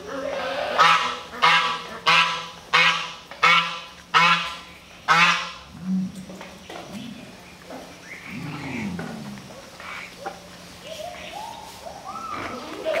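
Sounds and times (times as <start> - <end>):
ducks quacking: 0.3 - 5.7.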